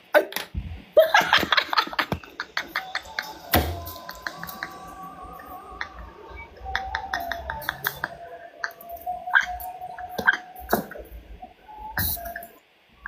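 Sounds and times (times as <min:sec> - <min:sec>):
person laughing: 0:01.0 - 0:11.1.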